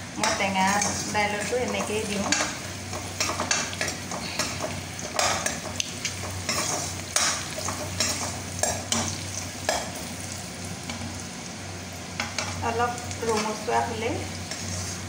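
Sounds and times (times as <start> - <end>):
food sizzling in hot oil: 0.0 - 15.0
metal ladle scraping a pan: 14.4 - 15.0.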